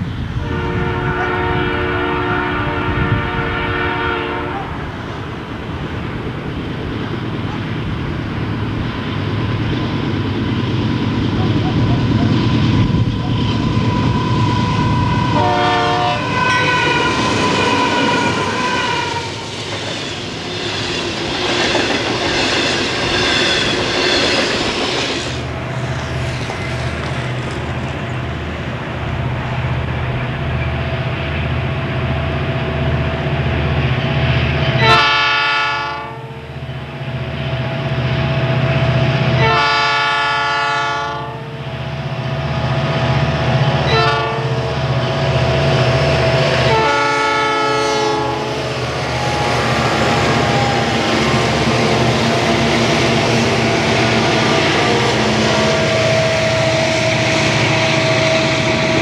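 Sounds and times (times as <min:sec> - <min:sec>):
train rumble and rail noise: 0:00.0 - 0:59.0
train air horn blasts: 0:00.4 - 0:04.9, 0:13.8 - 0:19.5, 0:34.7 - 0:36.5, 0:39.4 - 0:41.6, 0:43.9 - 0:44.8, 0:46.0 - 0:51.8, 0:53.4 - 0:59.0
diesel engines pulsing: 0:44.8 - 0:59.0.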